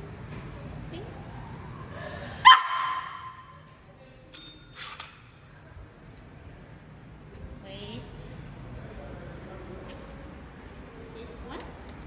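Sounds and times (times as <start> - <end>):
dog barking: 2.4 - 3.3.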